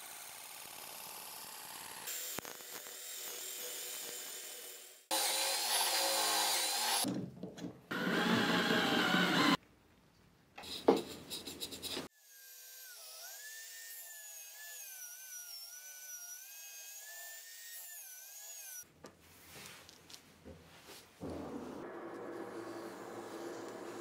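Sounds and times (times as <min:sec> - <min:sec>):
electric drill motor whine: 0:07.9 - 0:09.6
faint handling sounds: 0:18.9 - 0:21.2.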